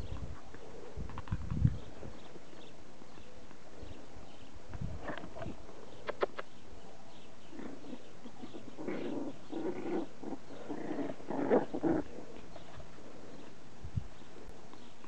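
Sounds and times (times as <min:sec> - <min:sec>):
puppies growling: 0:07.1 - 0:13.5.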